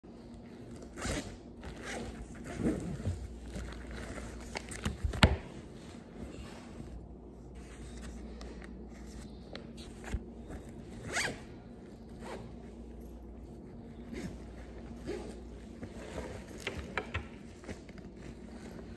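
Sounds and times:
bag zipper being pulled: 0:11.0 - 0:11.5, 0:14.0 - 0:16.6
rustling of bag: 0:17.4 - 0:18.9.

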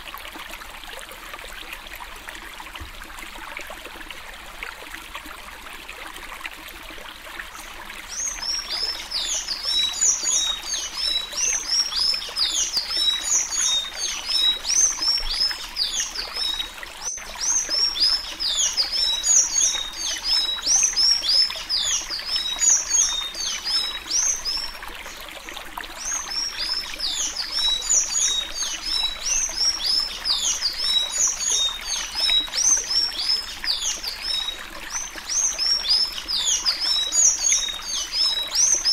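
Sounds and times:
trickling water: 0:00.0 - 0:38.9.

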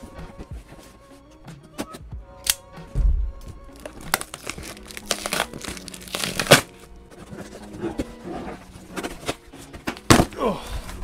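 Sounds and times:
cardboard and paper tearing: 0:03.8 - 0:10.3.

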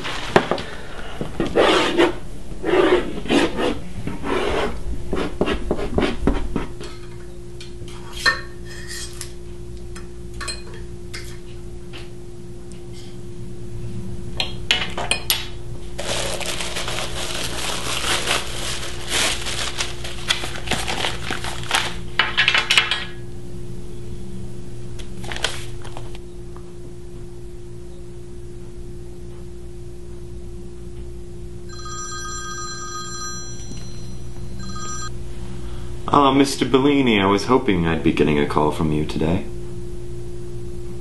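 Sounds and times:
paper and plastic rustling: 0:16.0 - 0:22.0, 0:25.2 - 0:26.2
telephone ringing: 0:31.7 - 0:35.2.

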